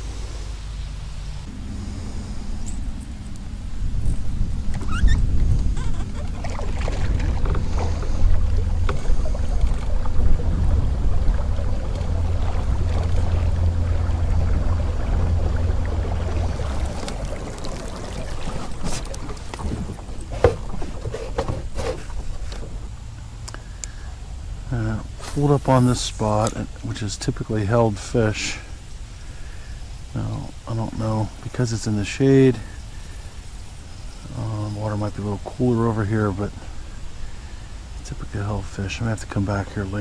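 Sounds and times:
wind rumbling over microphone: 0.0s - 23.4s.

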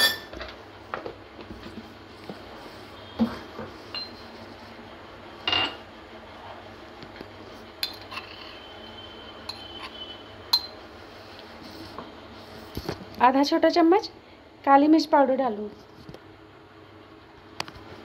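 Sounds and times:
kitchen utensils clinking: 0.0s - 0.4s.

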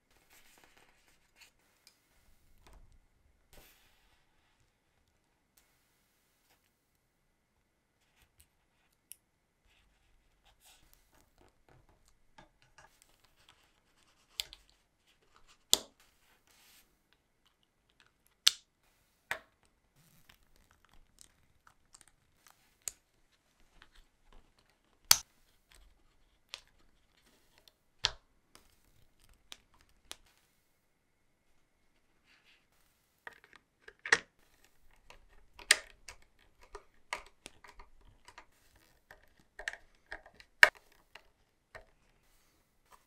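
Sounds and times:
soft scraping and rustling: 0.0s - 2.9s
plastic parts clicking and snapping: 33.3s - 42.1s.

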